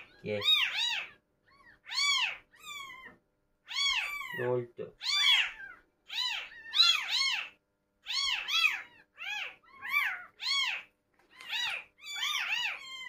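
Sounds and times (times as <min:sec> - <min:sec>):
newborn kittens mewing: 0:00.0 - 0:13.0.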